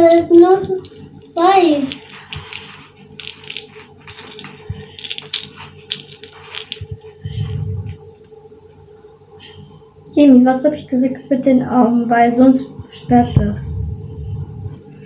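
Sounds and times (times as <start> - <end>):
craft materials clicking and scratching: 0.7 - 7.2.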